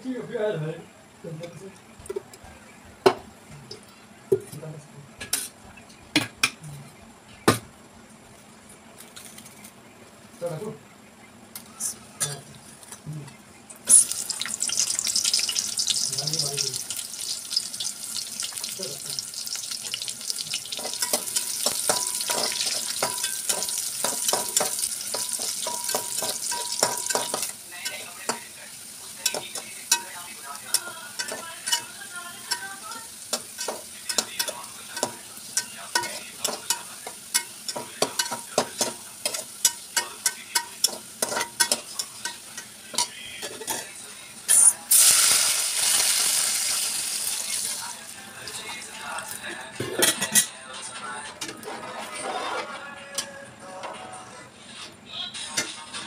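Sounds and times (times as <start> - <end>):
water hissing in hot oil: 13.8 - 43.0, 44.6 - 48.6
onions sizzling in oil: 13.8 - 43.7, 44.5 - 48.3
metal spoon clinking against pot: 20.6 - 28.5, 29.2 - 43.9.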